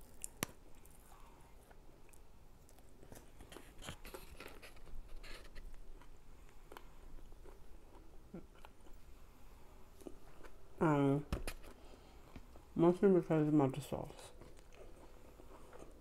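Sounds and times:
chewing crispy food: 0.0 - 9.0, 14.3 - 16.0.

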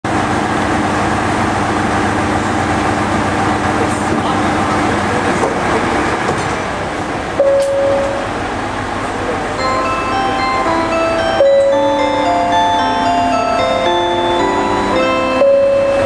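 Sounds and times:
diesel railcar engines idling: 0.1 - 16.0
short steady tone: 7.4 - 8.3, 14.0 - 16.0.

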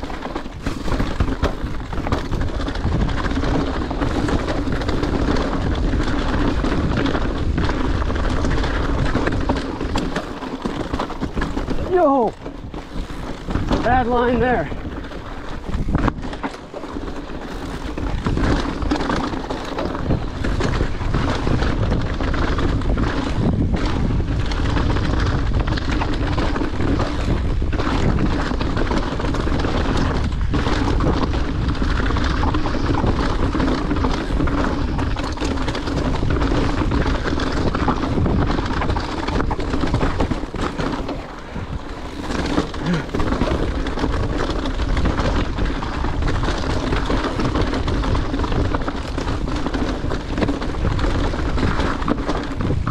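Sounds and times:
bike rattling over bumps: 0.0 - 52.9
tyres rolling over rocky dirt: 0.0 - 52.9
wind buffeting microphone: 0.0 - 52.9.

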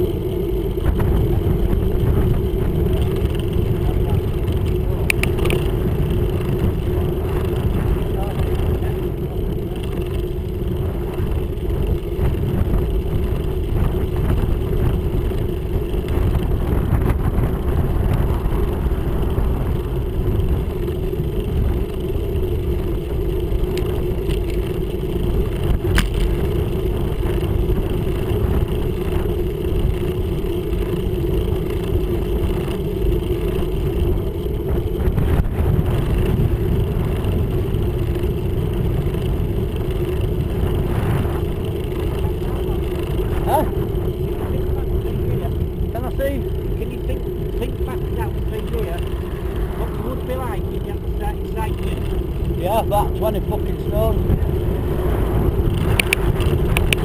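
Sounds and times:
tyres humming on tarmac: 0.0 - 57.0
wind rushing over microphone: 0.0 - 57.0
faint clicks: 4.5 - 5.7, 55.7 - 57.0.

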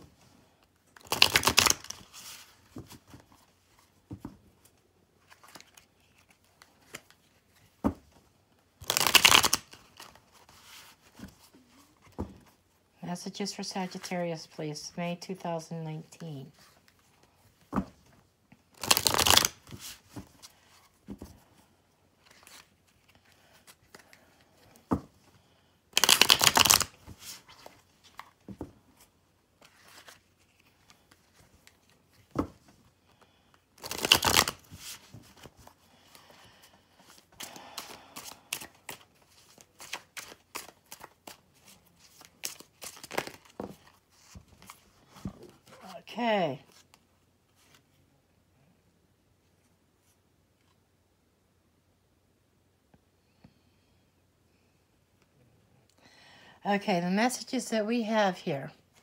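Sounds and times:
cards shuffled by hand: 1.0 - 3.4, 5.2 - 7.7, 8.8 - 12.6, 18.7 - 21.4, 22.2 - 25.0, 26.0 - 28.4, 29.0 - 33.2, 33.8 - 46.0.

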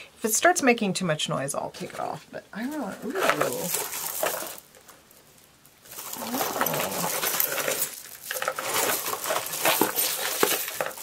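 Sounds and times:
jewelry clinking and rattling: 2.6 - 11.0.

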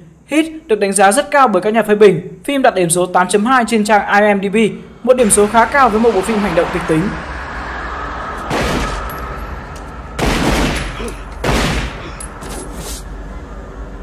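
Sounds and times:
low steady drone: 3.2 - 14.0
echoing gunshots: 8.5 - 9.2, 10.1 - 12.1.

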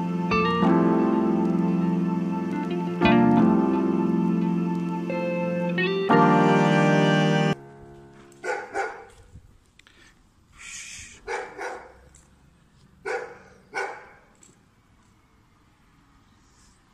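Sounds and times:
dog barking: 8.4 - 9.2, 11.2 - 12.1, 13.0 - 14.3
short hiss: 9.9 - 11.2.

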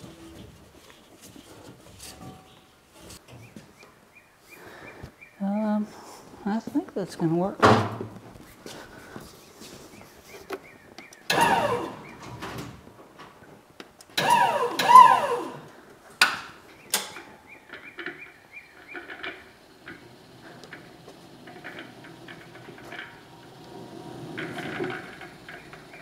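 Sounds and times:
electric lift motor whining: 11.3 - 12.4, 14.2 - 15.8, 18.8 - 26.0.

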